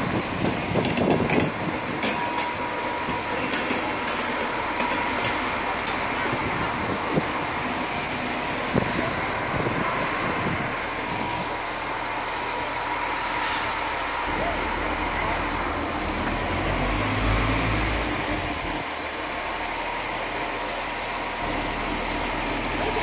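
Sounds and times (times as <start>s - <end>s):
thin steady whine: 0.0s - 16.0s
train wagons rumbling on rails: 0.0s - 23.0s
sharp rail clicks: 0.4s - 8.3s.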